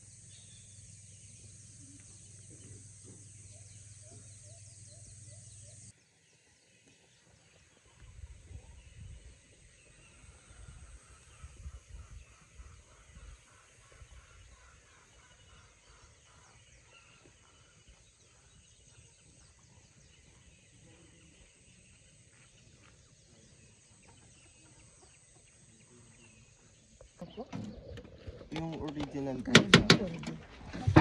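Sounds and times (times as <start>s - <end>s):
distant bird calls: 0.0s - 31.0s
low rumbling bumps: 27.2s - 31.0s.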